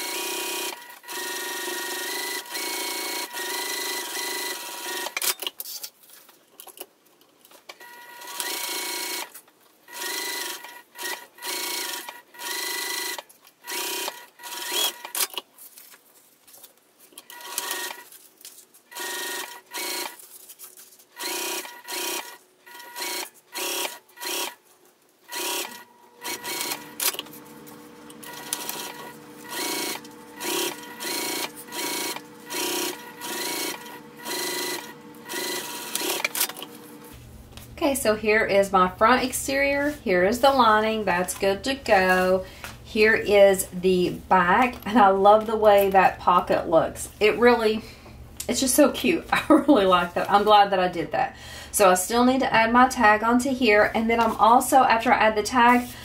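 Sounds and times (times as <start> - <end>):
sewing machine stitching: 0.0 - 5.5, 7.8 - 9.3, 9.9 - 15.4, 17.2 - 18.0, 18.9 - 20.2, 21.2 - 24.6, 25.3 - 37.2.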